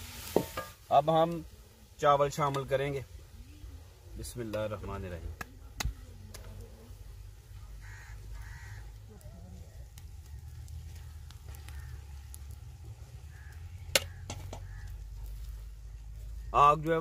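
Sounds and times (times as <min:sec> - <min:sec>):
crows cawing: 0:07.6 - 0:09.4, 0:10.2 - 0:15.6.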